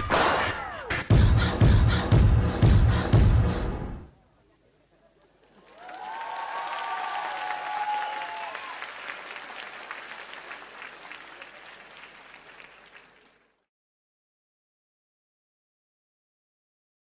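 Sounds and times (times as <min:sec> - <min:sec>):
audience applauding: 0:05.4 - 0:13.6
high cheering voices: 0:05.6 - 0:13.3.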